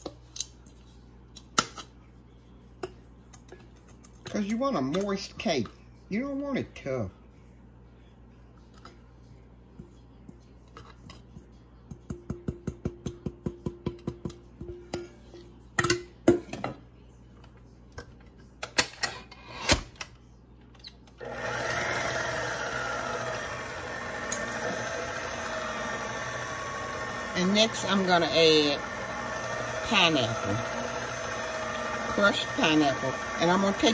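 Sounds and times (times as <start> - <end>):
stand mixer running: 21.2 - 33.9.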